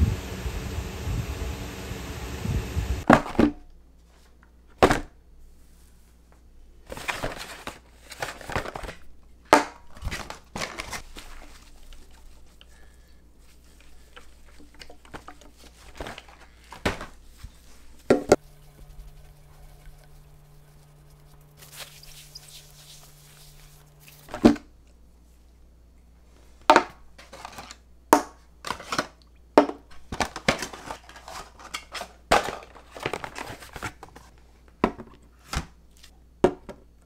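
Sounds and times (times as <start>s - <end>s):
packaging crinkling: 13.7s - 24.5s.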